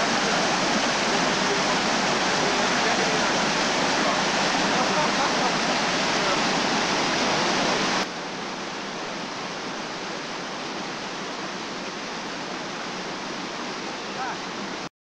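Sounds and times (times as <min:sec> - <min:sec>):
water rushing over rocks: 0:00.0 - 0:14.9.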